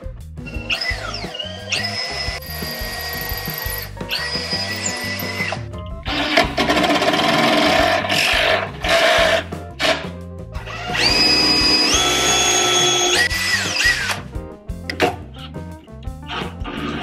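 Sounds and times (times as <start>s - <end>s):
background music: 0.0s - 17.0s
cordless drill boring into wood: 0.6s - 10.0s, 10.7s - 14.2s.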